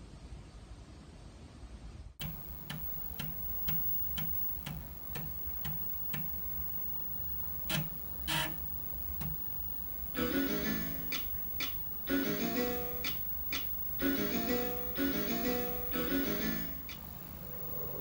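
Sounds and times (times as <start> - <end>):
floppy drive head clicking: 2.2 - 12.1.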